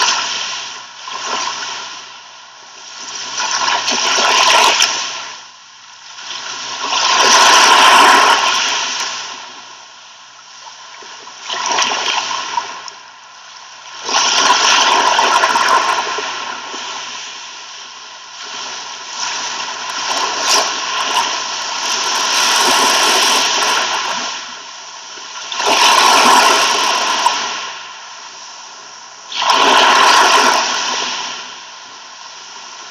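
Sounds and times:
ocean waves washing onto shore: 6.3 - 9.8, 14.0 - 32.9.

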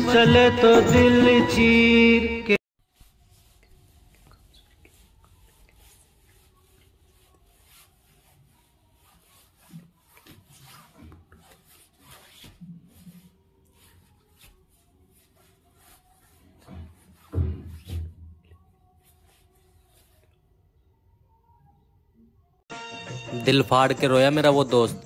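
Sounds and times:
faint rubbing and rustling: 2.8 - 20.5.

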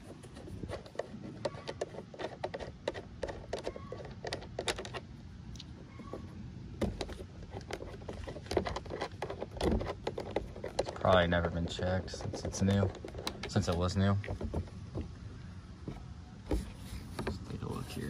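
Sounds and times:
plastic housing clicks and knocks: 0.7 - 5.0, 6.8 - 15.1.

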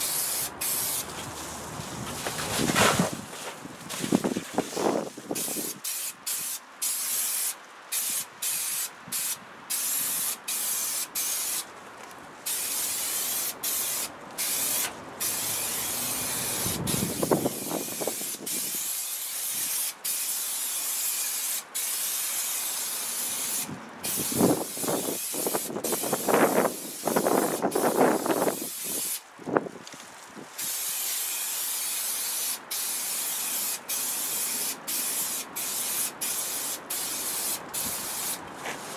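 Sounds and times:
aerosol spray hissing: 0.0 - 1.6, 5.4 - 11.6, 12.5 - 29.2, 30.6 - 38.9
foil insulation crinkling: 1.0 - 5.6.

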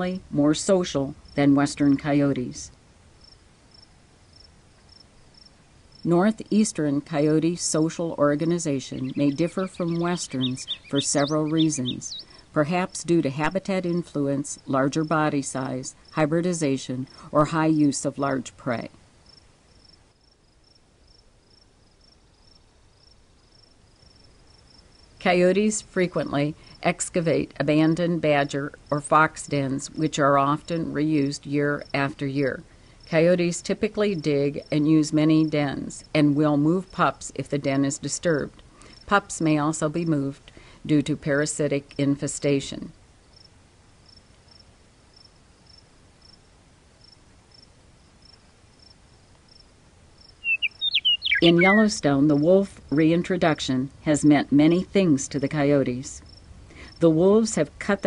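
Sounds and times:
low background hiss: 0.0 - 58.0
cricket chirping: 3.2 - 6.0, 19.2 - 25.2, 43.3 - 46.4, 47.0 - 51.7, 56.3 - 56.5.

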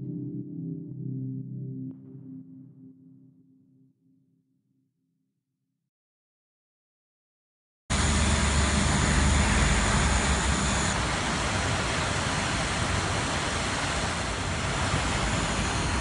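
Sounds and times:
drone propeller buzz: 7.9 - 16.0
faint high whine: 7.9 - 16.0.

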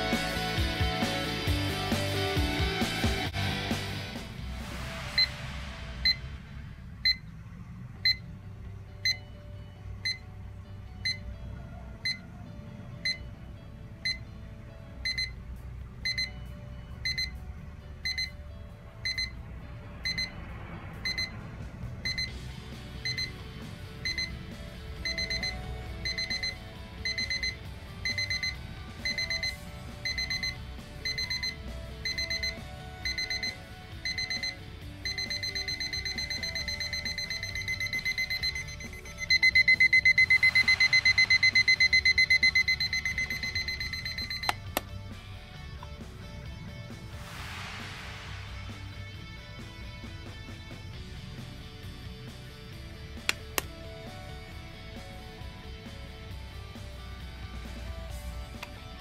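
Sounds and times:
alarm clock beeping: 7.0 - 7.3, 8.0 - 8.3, 12.0 - 12.3, 13.0 - 13.3, 15.0 - 15.4, 16.0 - 16.4, 17.0 - 17.4, 18.0 - 18.4, 19.0 - 19.4, 20.0 - 44.8.

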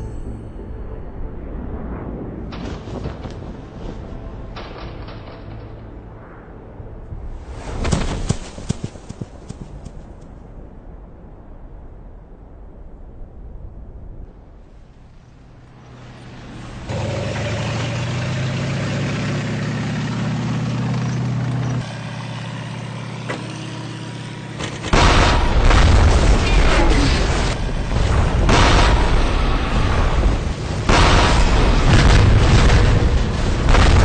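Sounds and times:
low droning hum: 0.0 - 7.6
continuous rumble: 0.0 - 34.0
heavy explosions booming: 24.9 - 34.0.

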